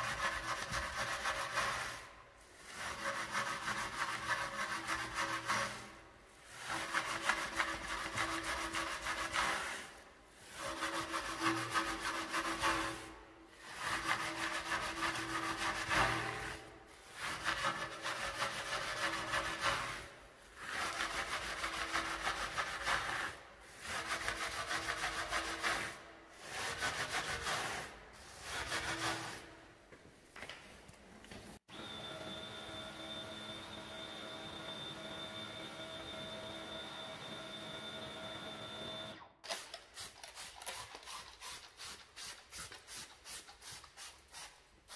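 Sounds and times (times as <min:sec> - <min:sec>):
brush scrubbing a wheel: 0:00.0 - 0:29.6, 0:39.9 - 0:44.9.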